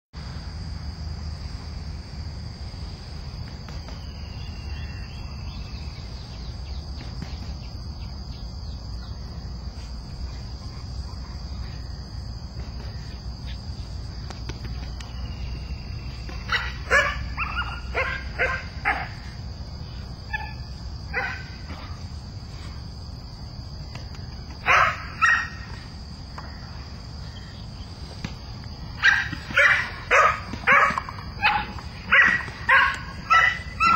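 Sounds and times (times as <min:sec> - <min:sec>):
dog barking: 0:16.5 - 0:19.2, 0:20.4 - 0:21.6, 0:24.6 - 0:25.6, 0:29.0 - 0:33.9.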